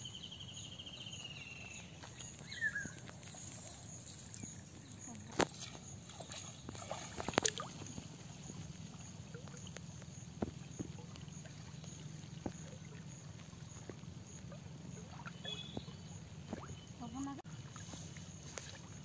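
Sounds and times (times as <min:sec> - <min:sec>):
water sloshing and splashing: 0:01.6 - 0:19.0
fishing net clicks: 0:06.7 - 0:08.0.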